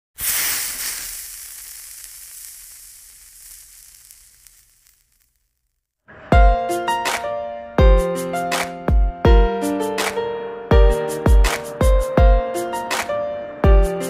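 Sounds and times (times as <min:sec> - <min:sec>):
frying sizzle: 0:00.2 - 0:05.6.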